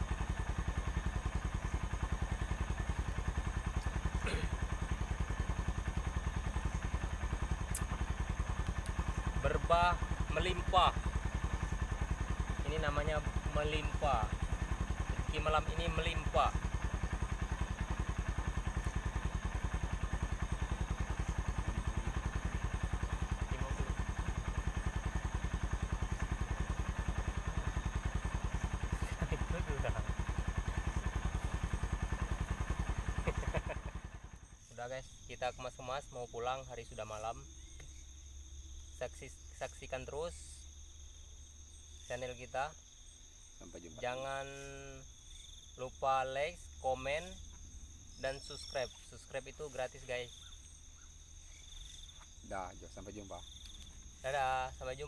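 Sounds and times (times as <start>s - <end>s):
small engine idling: 0.0s - 55.0s
click: 53.6s - 54.0s.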